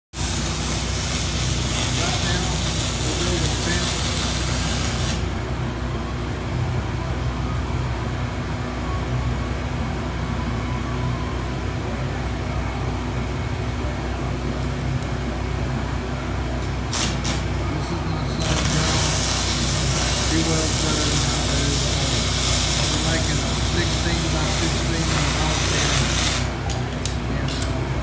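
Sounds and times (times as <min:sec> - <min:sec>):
steady welding sizzle: 0:00.2 - 0:05.4, 0:16.5 - 0:27.7
welding arc crackles: 0:00.2 - 0:05.4, 0:16.6 - 0:17.6, 0:18.3 - 0:26.6
low electrical hum: 0:00.2 - 0:28.0.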